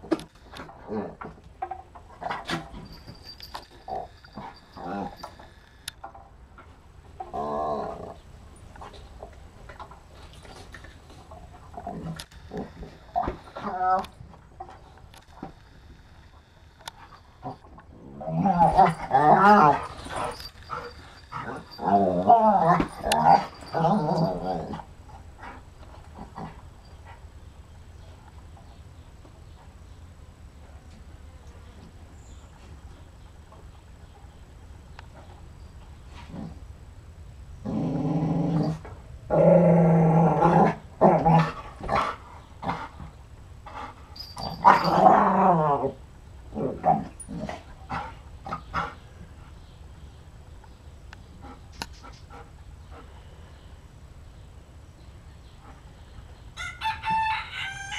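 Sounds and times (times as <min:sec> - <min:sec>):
dog whiny growls: 0:17.4 - 0:24.8, 0:37.6 - 0:42.1.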